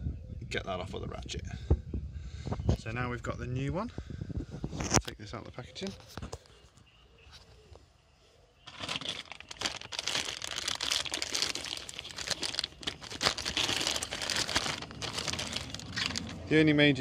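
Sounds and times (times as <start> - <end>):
plastic bag crinkling: 8.7 - 16.5.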